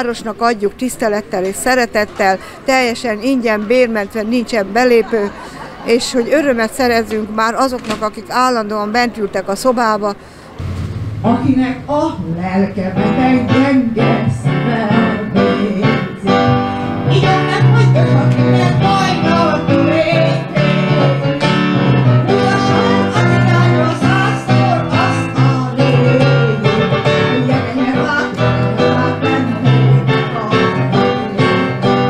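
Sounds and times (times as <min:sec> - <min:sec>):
woman singing with vibrato: 0:10.6 - 0:21.4, 0:22.2 - 0:32.0
electronic keyboard chords: 0:10.6 - 0:32.0.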